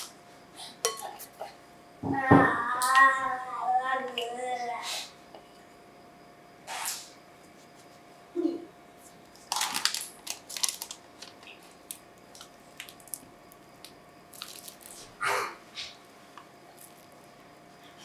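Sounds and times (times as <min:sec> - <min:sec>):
plastic bag crinkling: 0:09.4 - 0:13.3, 0:14.3 - 0:15.1.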